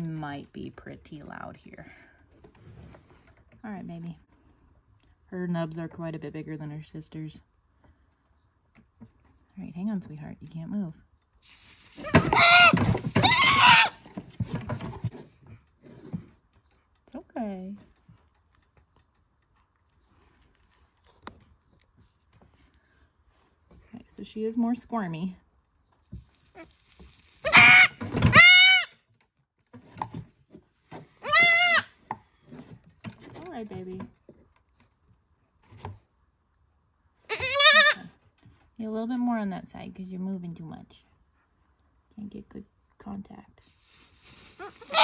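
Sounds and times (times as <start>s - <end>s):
goat kid screaming bleats: 12.0s - 14.0s, 27.4s - 28.9s, 31.2s - 31.9s, 37.3s - 38.1s, 44.6s - 45.0s.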